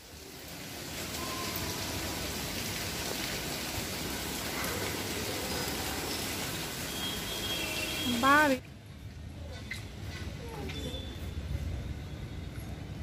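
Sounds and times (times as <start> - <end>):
heavy rain falling: 0.0 - 8.6.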